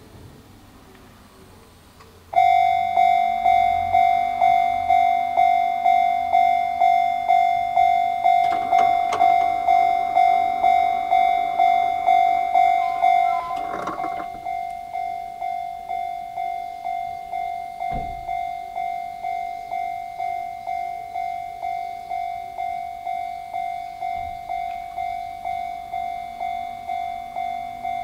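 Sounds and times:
level-crossing alarm bell ringing: 2.3 - 28.0
low thump: 17.9 - 18.4.

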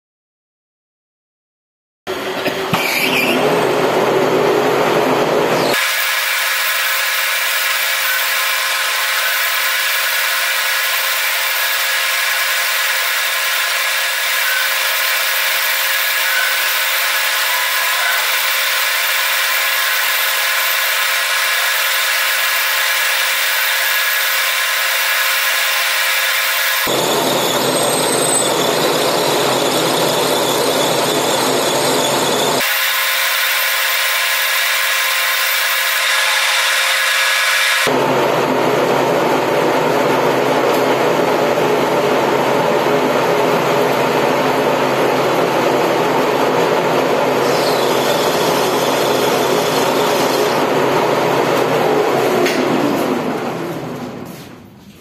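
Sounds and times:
lathe cutting with hissing whir: 5.4 - 38.0, 47.2 - 52.4.

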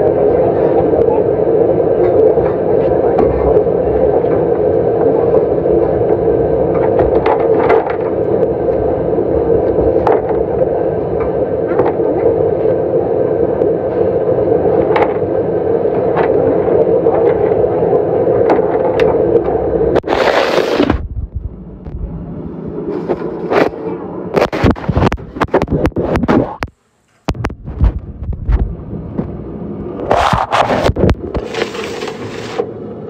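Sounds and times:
loud droning hum: 0.0 - 33.0.

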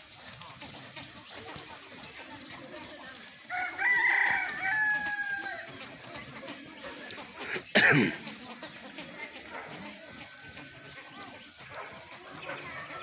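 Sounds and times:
rooster crowing: 3.5 - 5.8.

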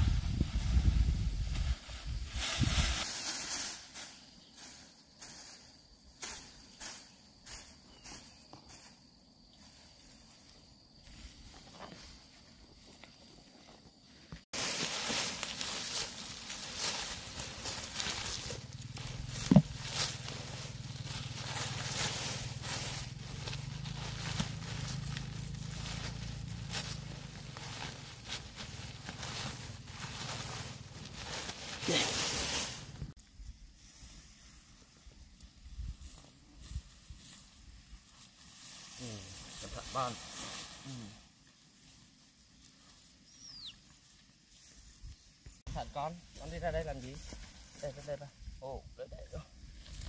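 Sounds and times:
dry grass rustling and crackling: 0.0 - 8.9, 9.6 - 48.6, 49.3 - 50.0
crickets droning: 0.0 - 50.0
rustles and taps: 17.7 - 20.2.

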